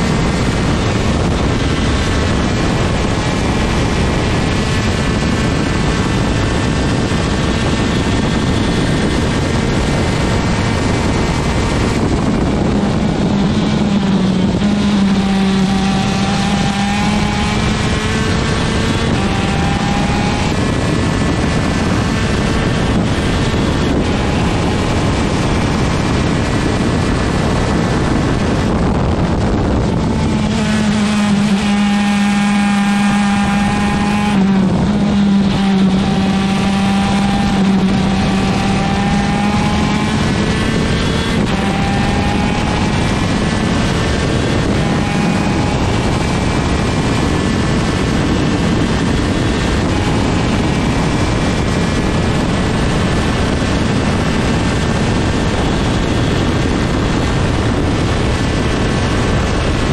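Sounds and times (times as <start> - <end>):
kart engine at high revs: 0.0 - 59.9
rough rushing noise: 0.0 - 59.9.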